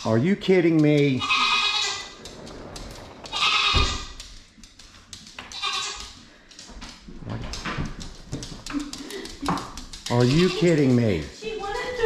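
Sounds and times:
goat kid bleating: 1.2s - 2.2s, 3.3s - 4.1s, 5.5s - 6.1s.

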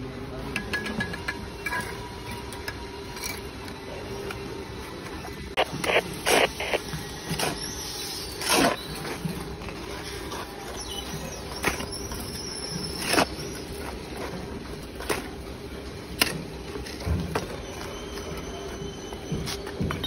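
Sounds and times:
steady low hum: 0.0s - 17.5s
shovel scraping concrete: 5.7s - 10.8s, 11.5s - 15.3s.

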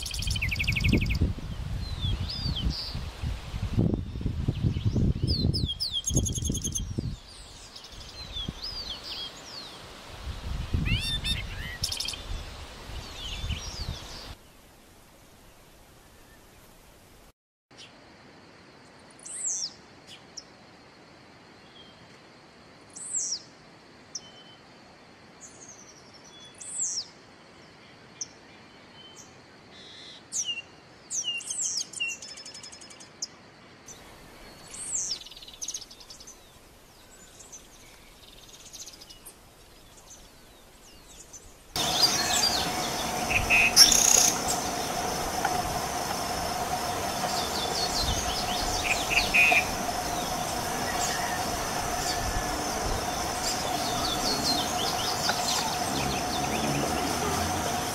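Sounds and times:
bird calling: 41.8s - 57.9s
steady buzzing: 41.8s - 57.9s.

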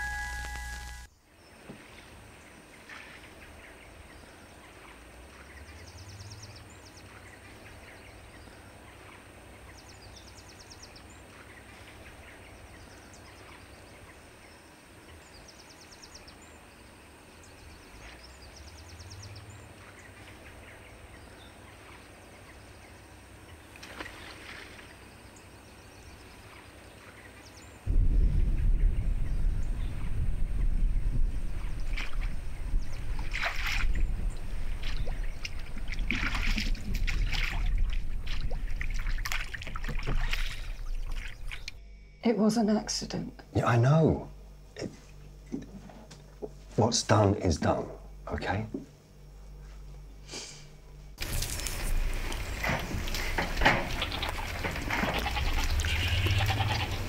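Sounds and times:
low steady wind: 0.0s - 57.0s
wind buffeting microphone: 27.9s - 41.8s
distant birds calling: 28.4s - 42.2s, 51.2s - 57.0s.

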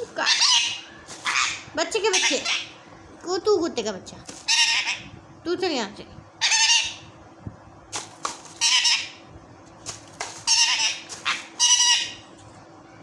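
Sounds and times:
parakeet squawking: 0.0s - 2.8s, 4.4s - 5.1s, 6.4s - 7.1s, 8.5s - 9.2s, 10.4s - 12.3s.

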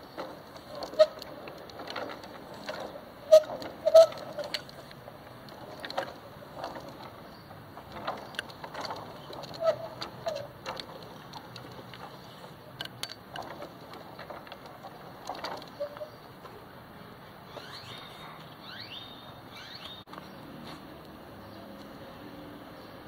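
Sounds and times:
short squeaks: 0.0s - 5.0s, 5.6s - 16.6s, 17.4s - 20.1s
chain drive clicks and knocks: 0.0s - 16.6s.

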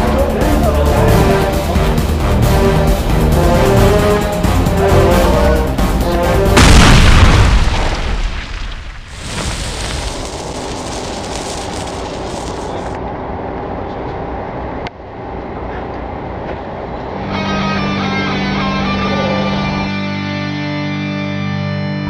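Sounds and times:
music: 0.0s - 7.1s, 17.2s - 22.0s
loud explosion boom: 6.5s - 11.2s
steady background noise: 10.2s - 18.0s.

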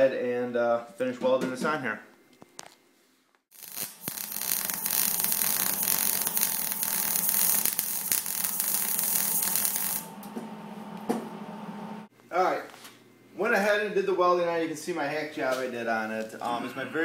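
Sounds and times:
welder arc crackling: 3.5s - 10.3s.

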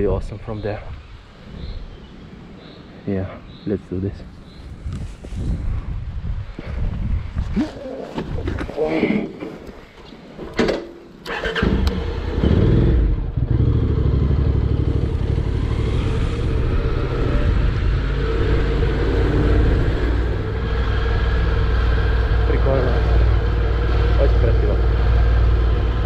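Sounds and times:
motorcycle engine running: 12.3s - 26.0s.

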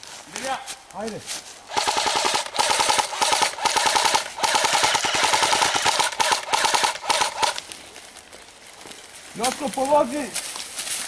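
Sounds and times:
airsoft gun firing bursts: 1.7s - 7.6s.

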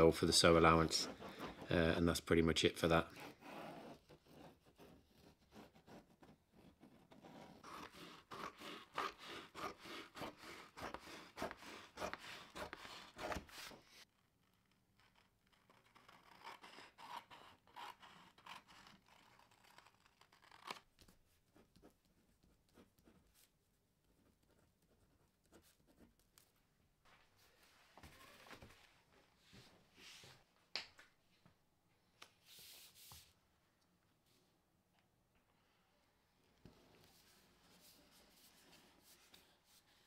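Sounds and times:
pen scratching on card: 0.8s - 1.9s, 3.1s - 14.0s, 15.0s - 23.5s.

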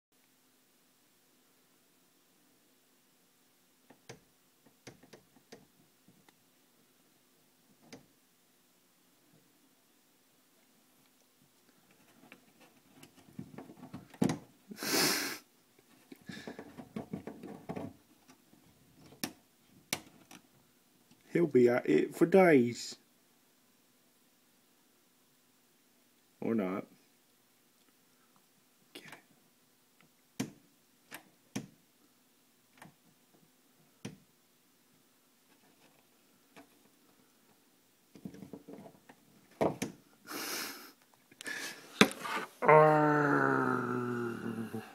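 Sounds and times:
breathy rush: 40.3s - 44.9s.

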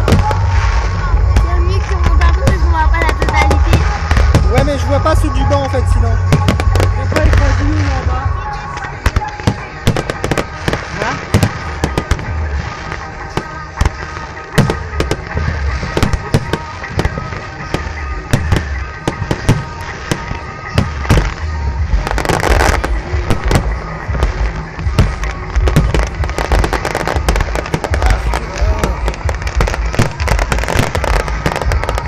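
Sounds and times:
firework shells bursting: 0.0s - 32.0s
hissing crackle: 0.0s - 32.0s.

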